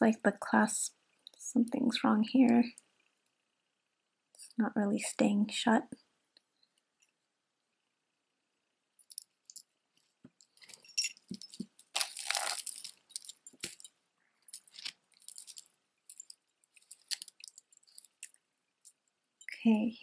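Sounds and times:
metal chains jingling: 10.6 - 11.6.

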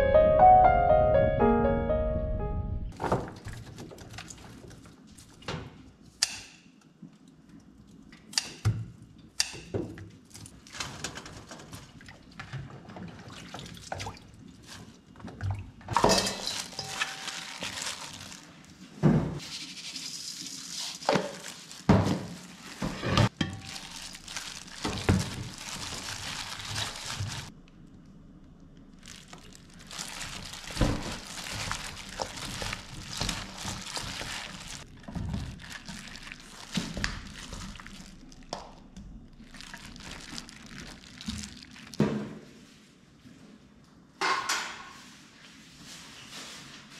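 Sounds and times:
piano tune: 0.0 - 3.0
rustling noise: 19.4 - 27.5, 45.0 - 46.9.

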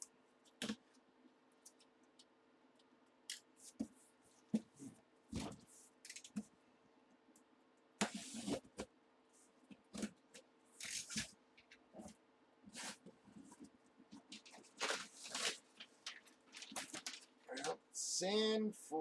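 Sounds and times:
cardboard rustling and tearing: 10.8 - 11.3, 14.2 - 17.7.

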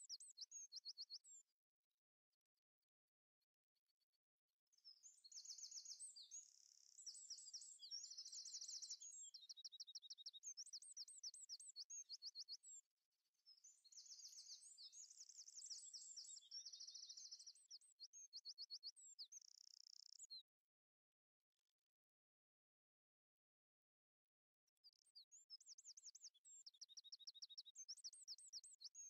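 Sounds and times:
songbird trills and whistles: 4.8 - 12.8, 13.6 - 20.4, 24.9 - 29.0.

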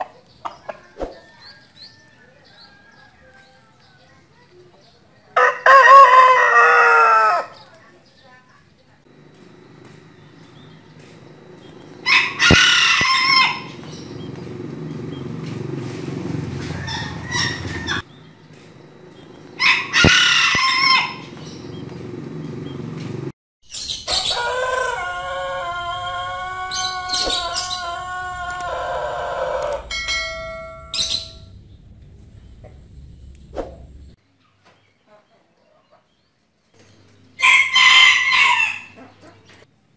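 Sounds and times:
rooster crowing: 0.6 - 4.2, 5.4 - 7.6, 11.9 - 14.4, 16.2 - 18.1, 19.6 - 21.6, 24.1 - 31.5, 37.4 - 39.2.

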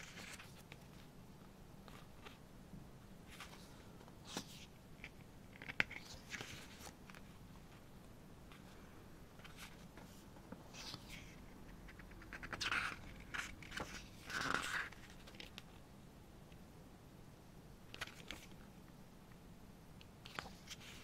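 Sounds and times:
book pages turning: 0.0 - 1.1, 1.8 - 2.4, 3.3 - 7.4, 9.4 - 15.7, 17.9 - 18.6, 20.2 - 21.0.

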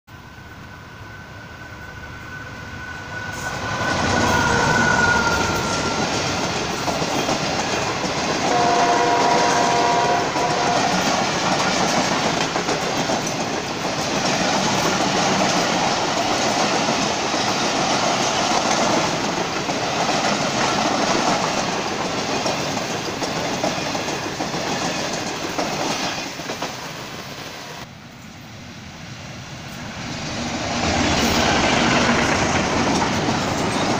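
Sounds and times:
multi-note train horn: 3.0 - 6.4, 8.4 - 11.3
train wheels clattering over rail joints: 10.5 - 27.0, 30.9 - 33.9.

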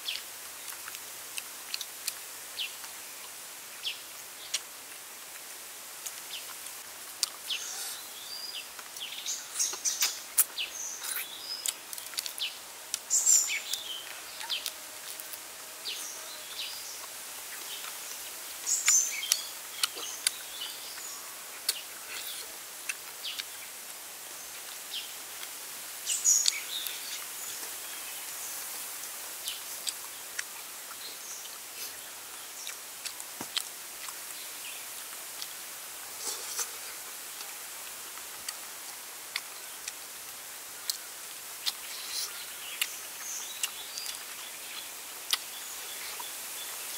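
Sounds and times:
outdoor hiss: 0.0 - 46.9
chewing and mouth smacks: 18.9 - 20.4, 32.6 - 34.2, 41.6 - 43.0, 43.6 - 45.5.

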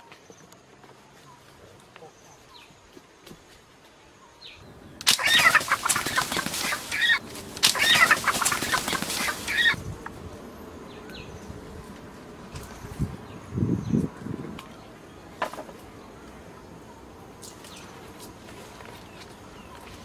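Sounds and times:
chicken squawking: 5.0 - 9.8
wings flapping: 5.0 - 9.9.

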